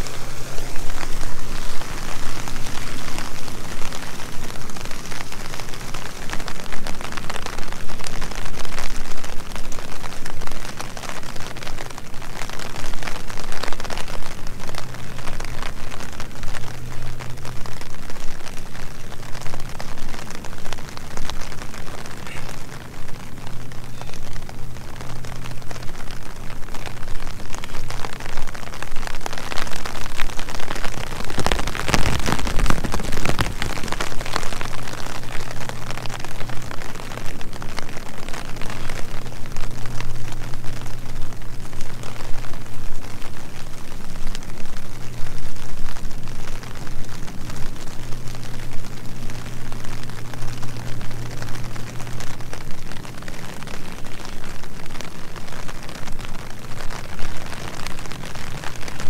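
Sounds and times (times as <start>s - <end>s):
louder rush of noise: 0.0s - 8.5s, 14.3s - 44.2s
steady rain falling: 0.0s - 59.0s.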